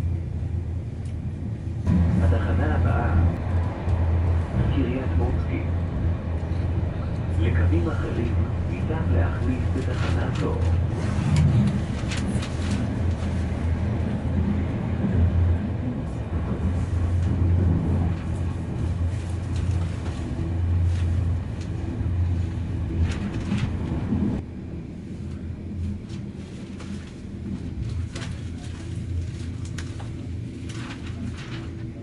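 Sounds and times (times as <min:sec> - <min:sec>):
train passing alongside: 0:00.0 - 0:32.0
train wheels rumbling on rails: 0:00.0 - 0:32.0
rail clicks: 0:01.9 - 0:24.4.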